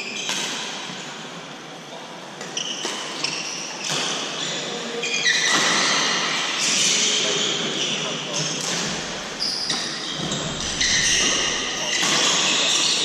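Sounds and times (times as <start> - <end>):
shoes squeaking on wooden floor: 5.0 - 13.0
racket hitting shuttlecock: 8.6 - 9.1, 10.6 - 13.0.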